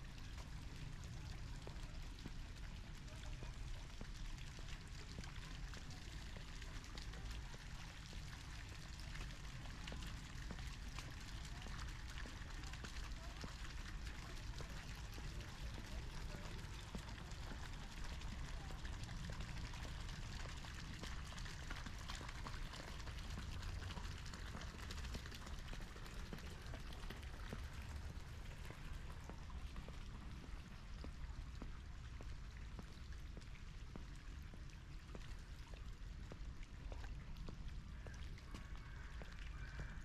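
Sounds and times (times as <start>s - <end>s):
fountain water splashing: 0.0s - 40.0s.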